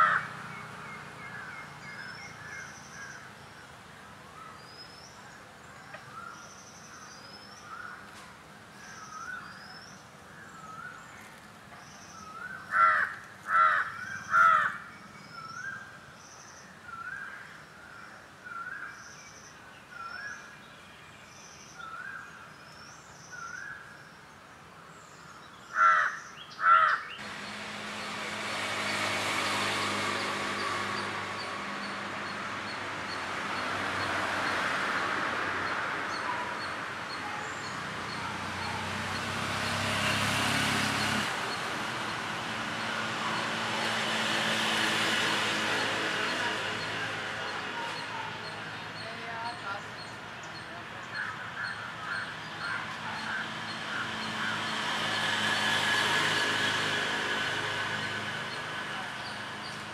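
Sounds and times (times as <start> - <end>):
harsh caws: 0.0 - 0.3, 12.7 - 14.8, 25.7 - 27.1.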